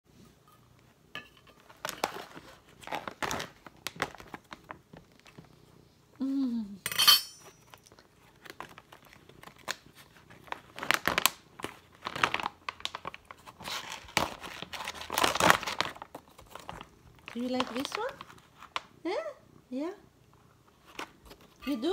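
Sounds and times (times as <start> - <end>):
plastic pouch crinkling: 1.6 - 5.4, 7.8 - 19.0
spoon clinking against metal bowl: 6.8 - 7.5.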